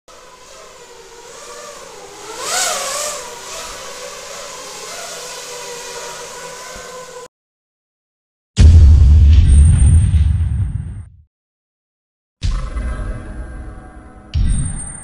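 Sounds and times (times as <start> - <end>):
quadcopter motors whining: 0.1 - 7.3.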